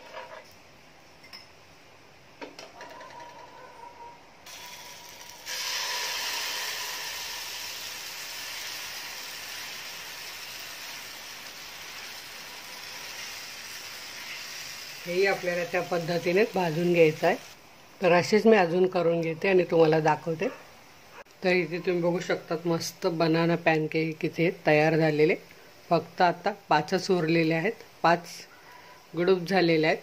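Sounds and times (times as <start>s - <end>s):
batter sizzling in a pan: 4.5s - 17.6s.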